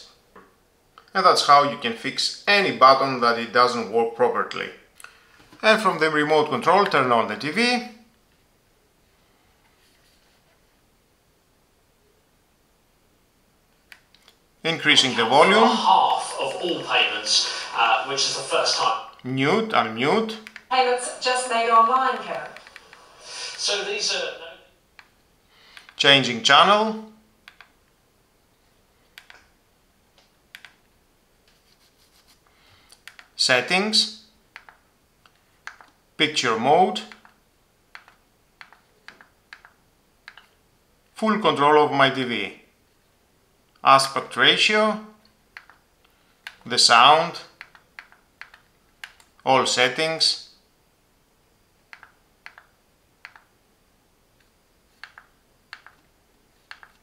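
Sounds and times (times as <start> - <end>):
remote control buttons clicking: 21.8 - 23.1, 34.5 - 36.0, 37.1 - 40.6, 45.5 - 45.8, 51.9 - 53.5, 54.4 - 56.0, 56.6 - 57.0.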